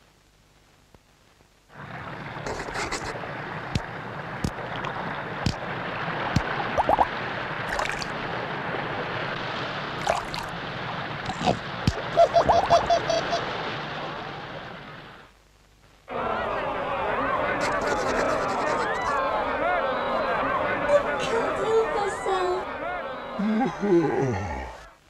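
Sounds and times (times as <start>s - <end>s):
sea surf rushing: 3.2s - 15.2s.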